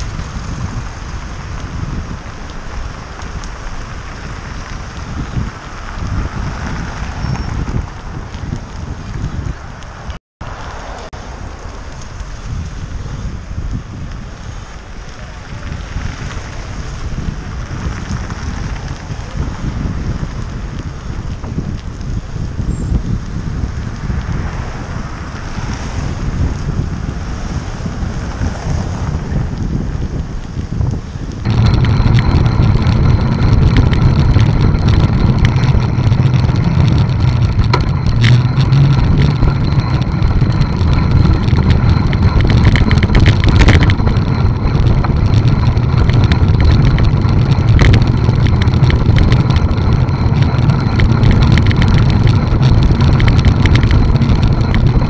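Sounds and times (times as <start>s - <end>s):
road vibration rumble: 0.0s - 55.0s
wind buffeting microphone: 0.0s - 55.0s
car traffic passing: 9.9s - 12.4s.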